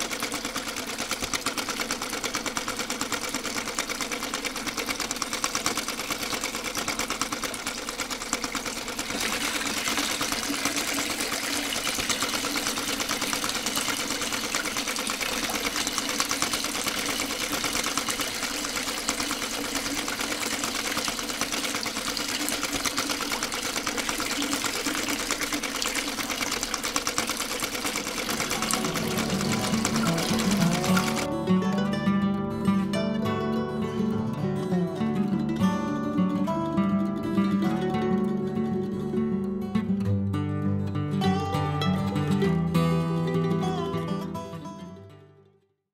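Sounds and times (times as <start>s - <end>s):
small electric motor buzzing rattle: 0.0s - 31.3s.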